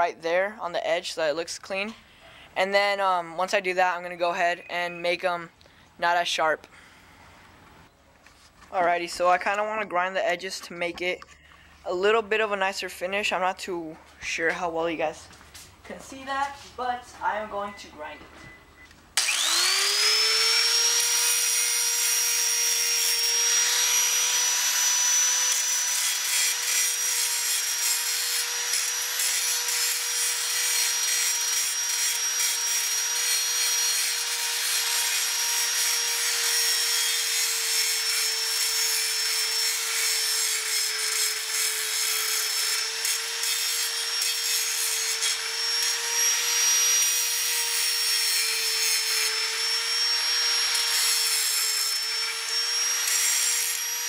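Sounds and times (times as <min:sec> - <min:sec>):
angle grinder grinding metal: 0:19.2 - 0:54.0.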